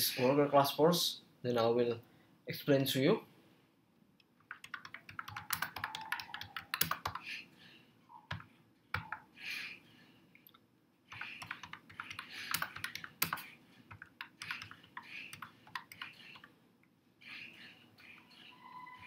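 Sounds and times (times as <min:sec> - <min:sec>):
typing on keyboard: 0:04.4 - 0:07.3, 0:08.3 - 0:09.3, 0:11.1 - 0:16.5.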